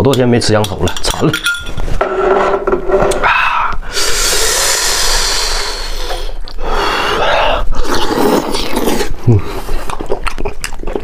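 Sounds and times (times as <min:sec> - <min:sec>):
eating and sucking meat: 0:03.8 - 0:11.0.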